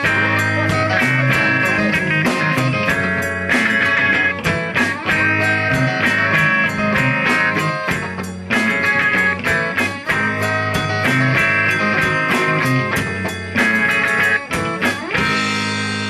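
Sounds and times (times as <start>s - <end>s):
band playing live: 0.0s - 16.0s
guitar riff: 0.0s - 16.0s.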